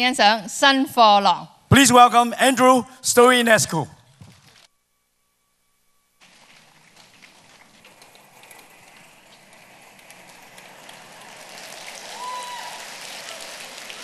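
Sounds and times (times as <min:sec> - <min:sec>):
audience applauding: 0:06.6 - 0:14.0.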